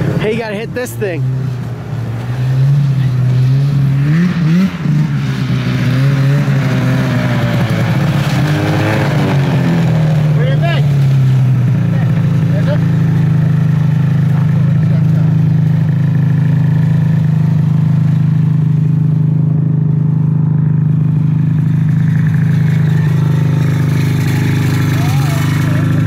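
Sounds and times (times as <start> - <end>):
snowmobile engine idling: 6.6 - 26.0.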